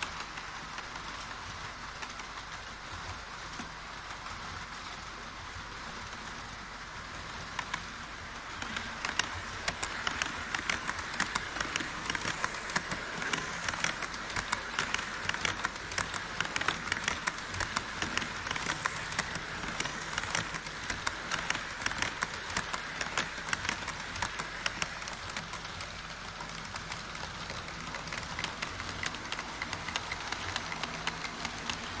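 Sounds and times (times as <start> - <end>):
wheels clicking over rail joints: 7.4 - 32.0
model train motor whirring: 7.6 - 32.0.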